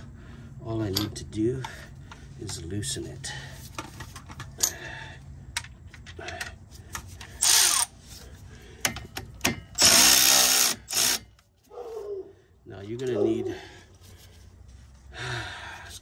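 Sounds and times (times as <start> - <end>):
power tool spinning out bolt: 7.3 - 7.9, 9.8 - 11.3.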